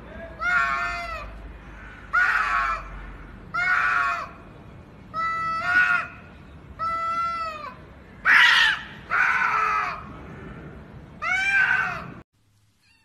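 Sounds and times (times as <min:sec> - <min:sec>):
cats yowling: 0:00.4 - 0:01.3, 0:06.8 - 0:10.0, 0:11.2 - 0:12.2.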